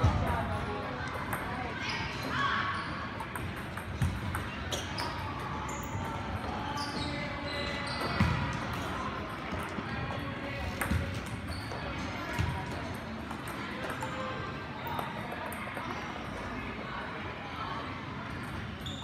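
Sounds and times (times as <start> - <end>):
table tennis balls clicking: 3.2 - 5.2.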